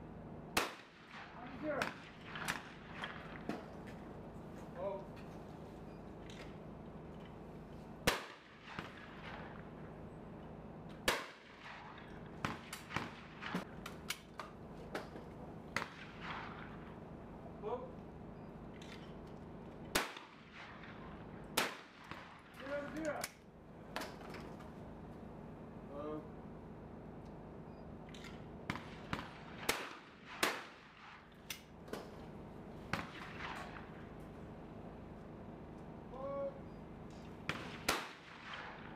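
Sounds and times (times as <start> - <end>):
shotgun shots with echo: 0.6 - 3.7, 8.0 - 9.7, 11.0 - 13.8, 15.7 - 16.9, 19.9 - 23.0, 28.7 - 31.3, 32.9 - 34.1, 37.4 - 38.9.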